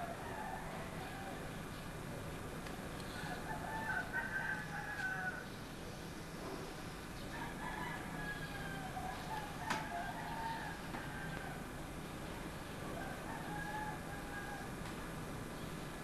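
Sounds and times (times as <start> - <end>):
steady low hum: 0.0 - 16.0
long held animal call: 12.8 - 14.8.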